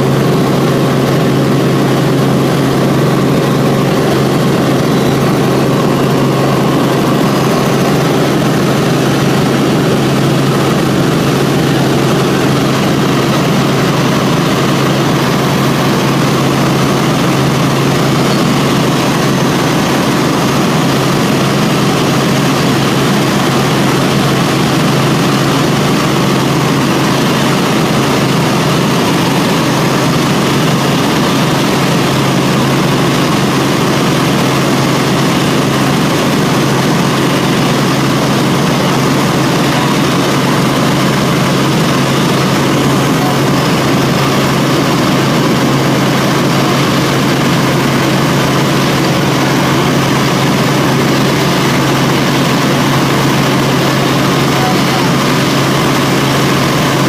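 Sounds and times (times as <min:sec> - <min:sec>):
helicopter engine and rotor: 0:00.0 - 0:57.0.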